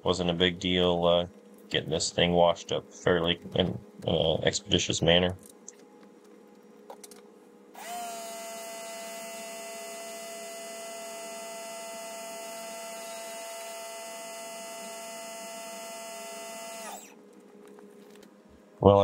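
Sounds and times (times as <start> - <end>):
electric motor whining: 7.8 - 17.2.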